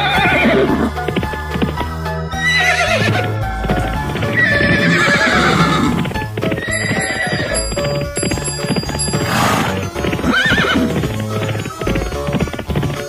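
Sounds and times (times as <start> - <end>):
cartoon horse whinnies: 0.0 - 1.0, 2.4 - 7.8, 9.0 - 13.0
background music: 0.0 - 13.0
galloping hooves clip-clop: 0.0 - 13.0.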